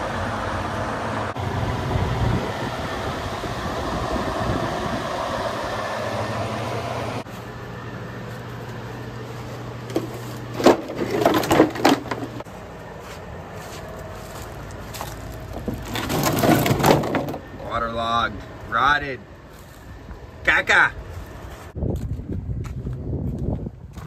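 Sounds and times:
electric fan humming: 0:00.0 - 0:15.9
plywood pieces knocking and clattering: 0:09.9 - 0:12.4, 0:15.0 - 0:17.5.

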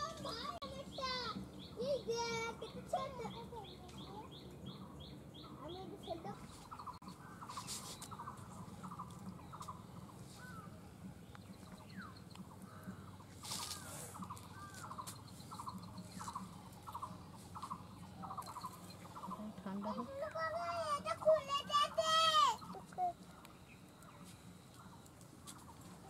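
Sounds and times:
bird trilled call: 0:11.7 - 0:23.4.

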